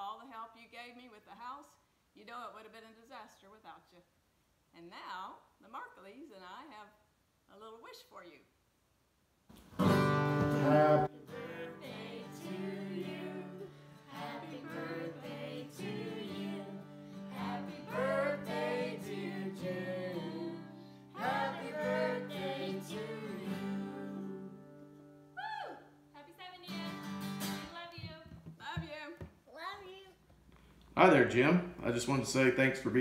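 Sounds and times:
acoustic guitar strumming: 0:09.6 - 0:25.3, 0:26.7 - 0:28.6
group singing together: 0:10.5 - 0:24.8.

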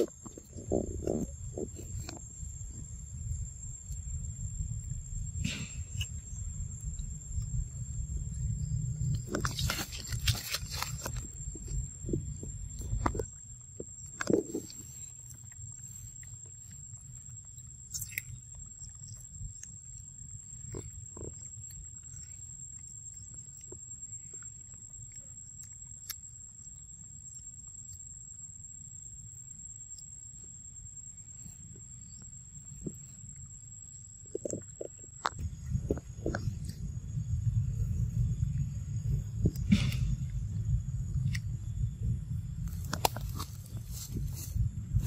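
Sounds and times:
low rumble: 0:00.0 - 0:17.8, 0:35.2 - 0:45.0
rustling: 0:09.0 - 0:25.3, 0:42.7 - 0:45.0.

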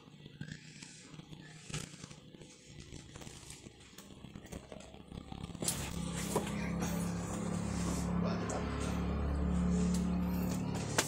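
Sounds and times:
plastic cups crinkling and clicking: 0:00.0 - 0:06.7.

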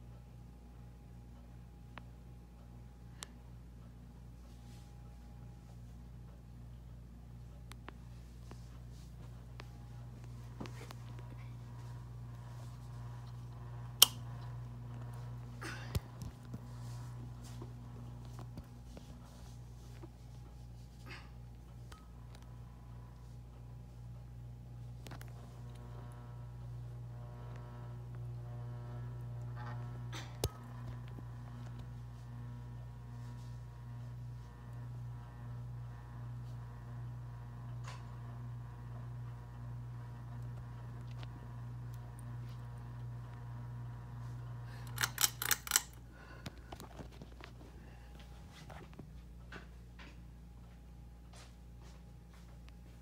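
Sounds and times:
ceiling fan motor humming: 0:00.0 - 0:53.0
sharp clicks and rattles: 0:44.8 - 0:47.6.

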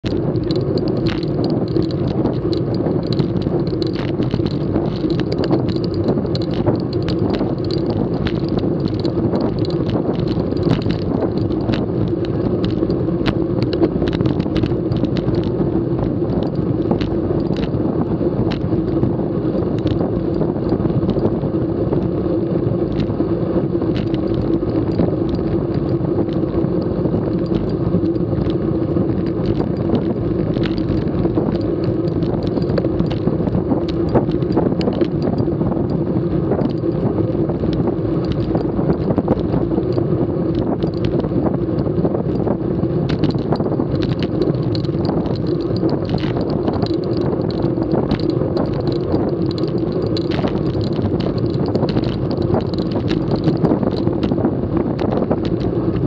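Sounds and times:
bike tyres rolling on concrete: 0:00.0 - 0:56.0
wind rushing over camera: 0:00.0 - 0:56.0.

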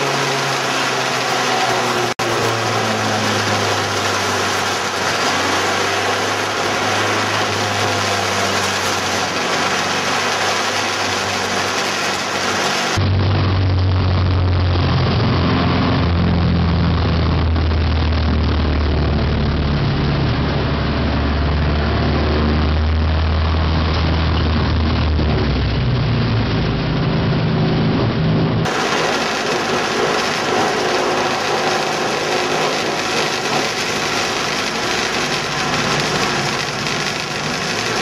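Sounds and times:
hissy engine noise: 0:00.0 - 0:13.1, 0:28.7 - 0:38.0
race car engines droning: 0:00.0 - 0:38.0.

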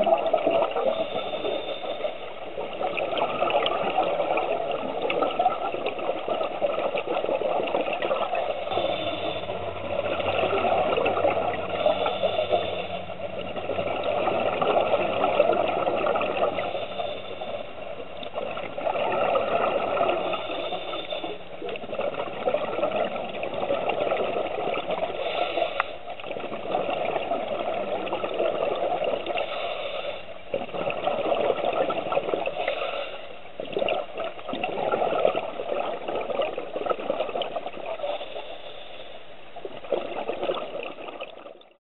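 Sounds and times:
bubbling exhalations: 0:02.5 - 0:17.4.

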